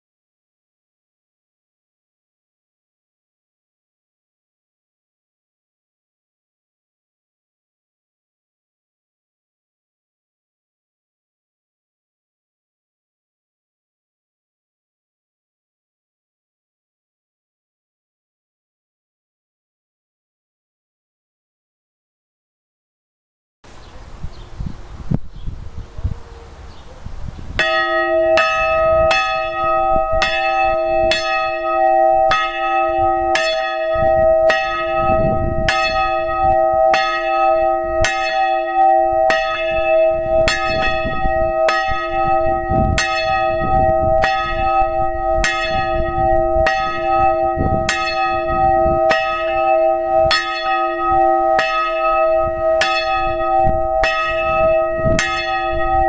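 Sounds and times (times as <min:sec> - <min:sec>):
church bell ringing: 0:27.6 - 0:56.0.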